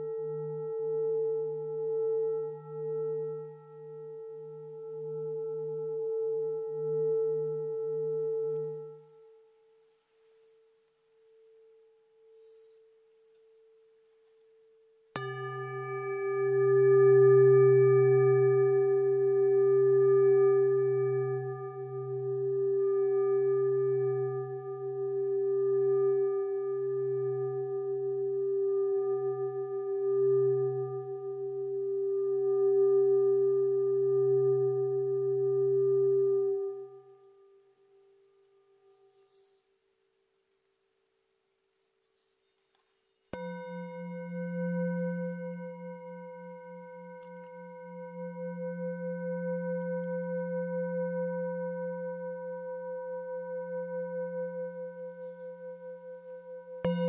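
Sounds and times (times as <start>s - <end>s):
singing bowl ringing: 14.5s - 39.4s, 43.3s - 57.0s.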